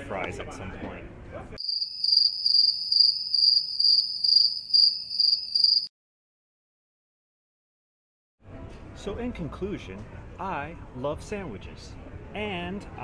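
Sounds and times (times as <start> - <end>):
cricket chirping: 1.6 - 5.9.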